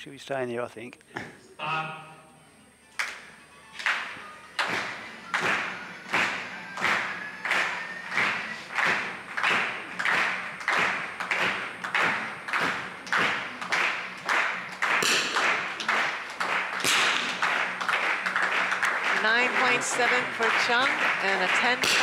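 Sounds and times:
spectators clapping in unison: 3.0s - 3.2s, 3.8s - 22.0s
applause and cheering: 3.8s - 22.0s.

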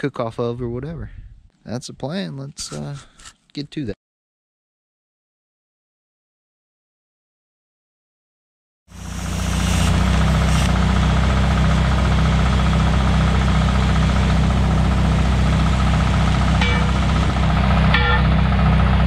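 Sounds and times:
welder engine idling: 8.9s - 19.0s
metal wheels clanking: 11.9s - 18.8s.

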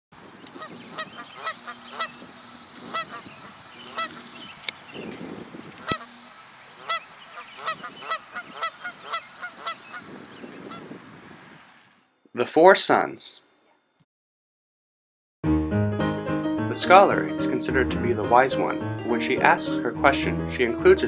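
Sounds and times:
geese honking: 0.5s - 4.9s, 5.7s - 11.0s.

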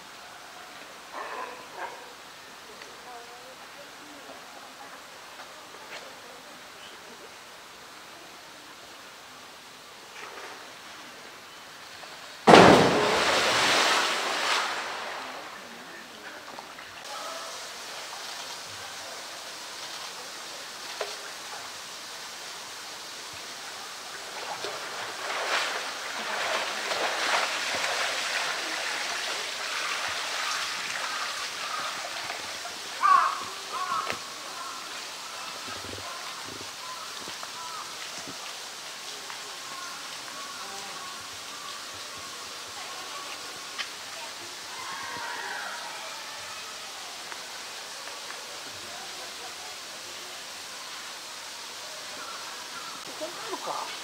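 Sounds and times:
large animal splashing into pool: 12.4s - 15.8s, 24.3s - 34.8s
water sloshing and lapping: 24.2s - 32.8s.

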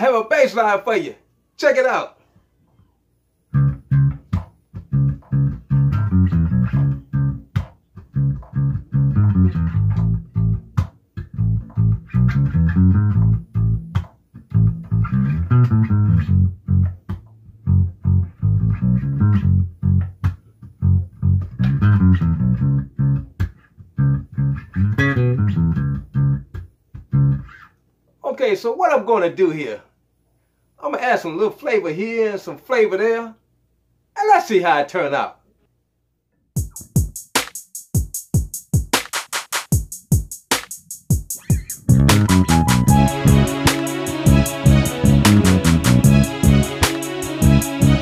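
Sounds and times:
electric bass guitar groove: 3.5s - 27.7s, 40.9s - 48.0s.

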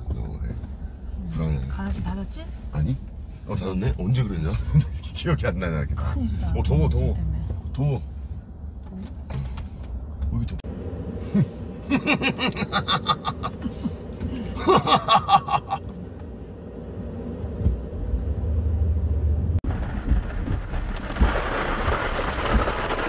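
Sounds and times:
low rumble of moving car: 0.0s - 23.0s
people laughing: 11.9s - 14.0s, 14.6s - 15.8s
rain hissing on windshield: 19.7s - 23.0s.

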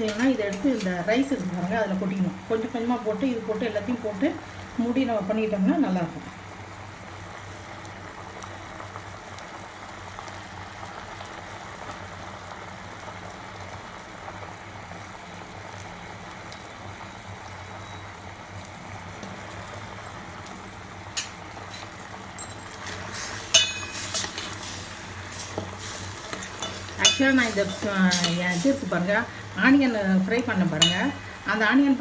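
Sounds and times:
pot boiling and bubbling: 0.0s - 32.0s
ladle clinking against pot: 23.5s - 24.3s, 30.8s - 31.0s.

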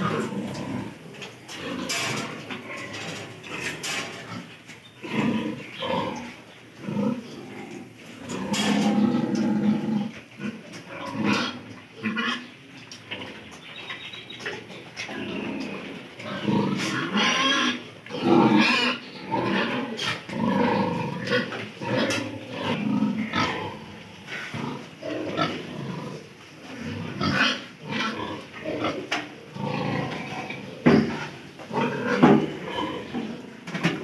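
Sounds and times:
piglets grunting: 0.0s - 12.5s, 26.8s - 34.0s.

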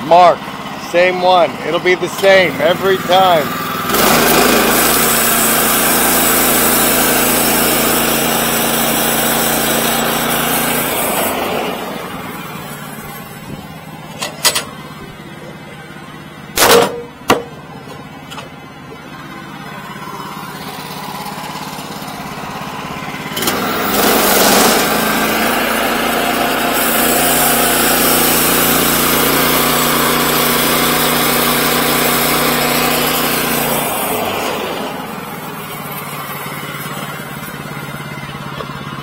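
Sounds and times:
petrol engine running: 0.0s - 39.0s
saw blade cutting timber: 0.9s - 14.7s, 23.2s - 38.7s.

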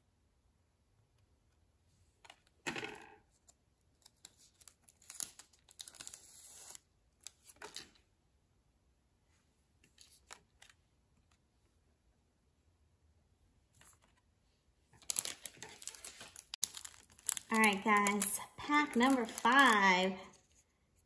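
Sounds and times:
cards rustling and flicking: 3.4s - 8.0s, 9.8s - 11.4s, 15.0s - 20.6s.

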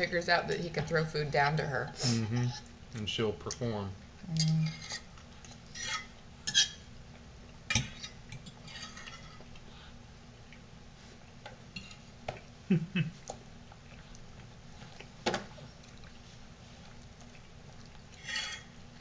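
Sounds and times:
adult voice humming: 2.0s - 2.5s, 12.7s - 13.2s.

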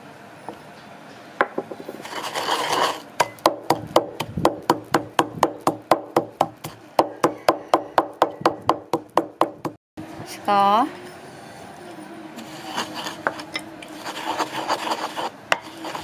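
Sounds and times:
pestle knocking in mortar: 1.4s - 2.2s, 3.2s - 9.8s
pestle grinding in mortar: 1.4s - 9.8s, 12.4s - 16.0s.

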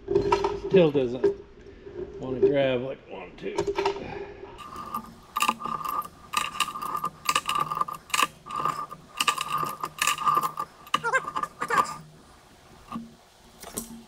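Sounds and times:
steel chain clinking and rattling: 4.6s - 13.1s.

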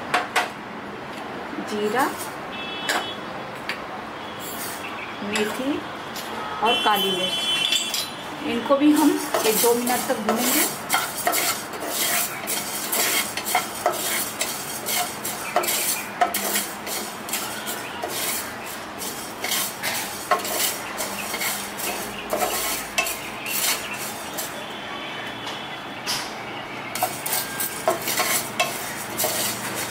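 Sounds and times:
wooden spatula scraping pan: 8.7s - 24.6s, 27.0s - 29.9s
seeds rattling in a pan: 9.0s - 24.6s, 27.0s - 29.9s.

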